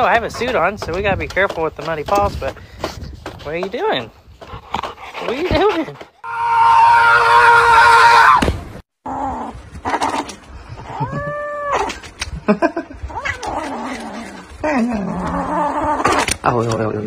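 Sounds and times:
kitten mewing and crying: 0:13.0 - 0:14.0.

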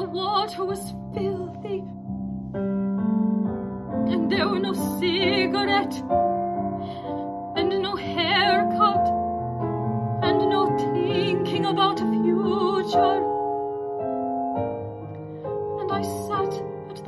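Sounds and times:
piano accompaniment: 0:00.0 - 0:17.0
woman singing with vibrato: 0:04.1 - 0:06.0, 0:10.2 - 0:13.2.

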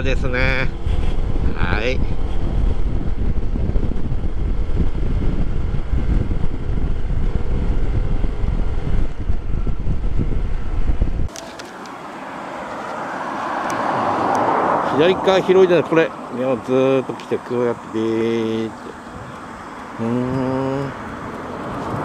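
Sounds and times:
wind buffeting microphone: 0:00.0 - 0:11.4, 0:18.6 - 0:22.0
scooter engine and road noise: 0:00.0 - 0:22.0.

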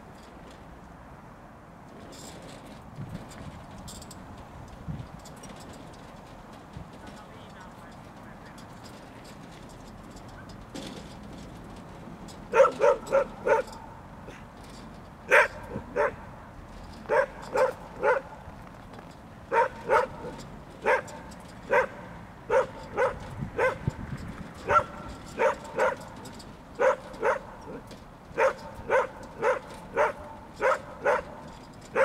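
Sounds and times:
dog barking: 0:12.5 - 0:13.8, 0:15.3 - 0:16.3, 0:17.1 - 0:18.3, 0:19.5 - 0:23.9, 0:24.7 - 0:26.1, 0:26.8 - 0:27.8, 0:28.4 - 0:32.0.

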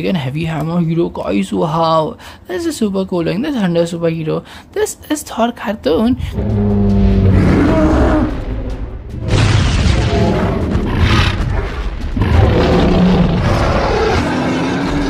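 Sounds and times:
background music: 0:04.9 - 0:15.0
cartoon booms: 0:06.4 - 0:11.7.

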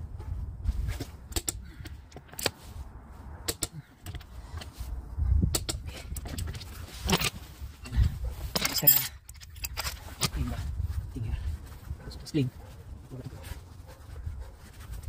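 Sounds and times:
socket wrench clicking: 0:01.3 - 0:02.6, 0:05.5 - 0:06.5.

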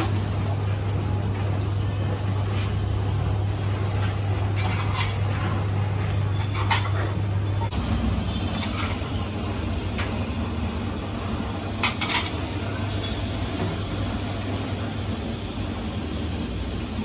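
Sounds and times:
busy kitchen rumble: 0:00.0 - 0:17.0
metal utensils clattering: 0:04.0 - 0:07.2, 0:08.3 - 0:09.2, 0:11.8 - 0:12.6.

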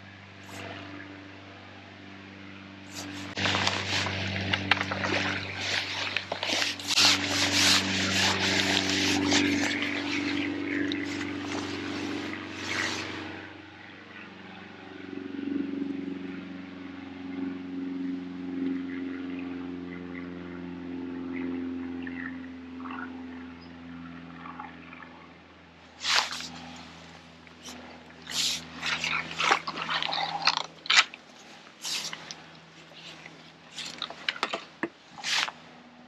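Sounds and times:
steady low hum: 0:00.0 - 0:36.0
fish thrashing and splashing: 0:02.9 - 0:13.3, 0:26.0 - 0:35.6.

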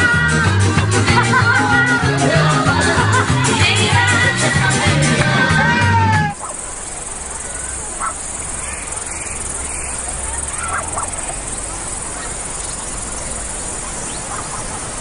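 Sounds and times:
insects chirring: 0:06.4 - 0:15.0.

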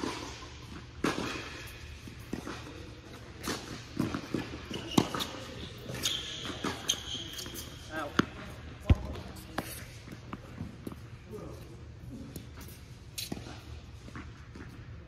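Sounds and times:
shoe squeak: 0:04.2 - 0:08.1.

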